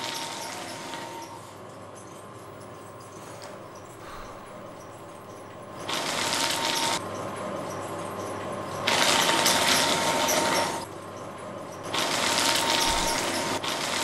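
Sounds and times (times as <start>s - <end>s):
paper shredder motor whining: 8.9s - 10.8s, 12.0s - 14.0s
paper being shredded: 12.0s - 14.0s.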